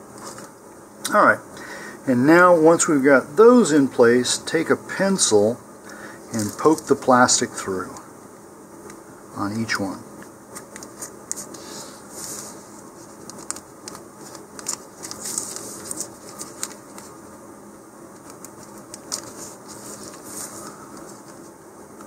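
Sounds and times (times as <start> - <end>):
thin plastic sheet crinkling: 6.3 - 7.1, 12.2 - 17.3, 18.1 - 21.6.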